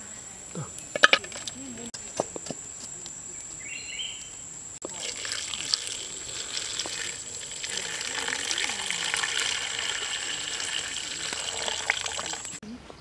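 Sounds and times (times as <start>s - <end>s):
aromatics sizzling in a wok: 4.8s - 12.6s.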